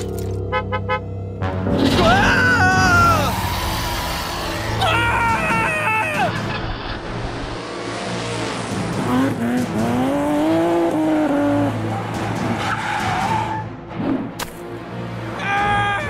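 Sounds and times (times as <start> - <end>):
music: 0.0 - 16.0
tyres skidding: 2.6 - 14.0
sports car engine revving: 7.8 - 12.5.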